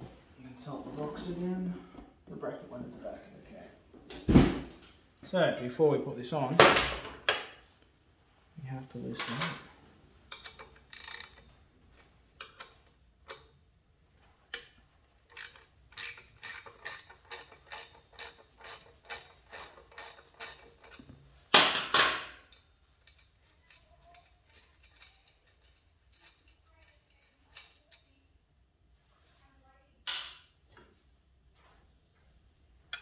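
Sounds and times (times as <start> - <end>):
ratcheting wrench clicking: 10.3 - 13.5, 14.5 - 21.1, 22.5 - 28.1.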